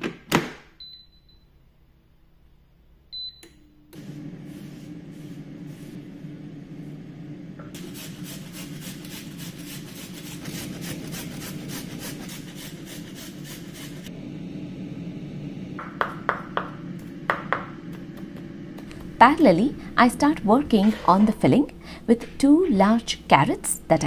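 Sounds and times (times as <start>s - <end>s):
carrots rasping on a grater: 7.8s - 14.1s.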